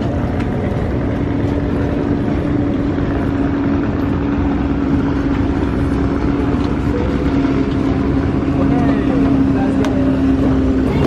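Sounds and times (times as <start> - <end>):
boat engine running steadily: 0.0 - 11.0.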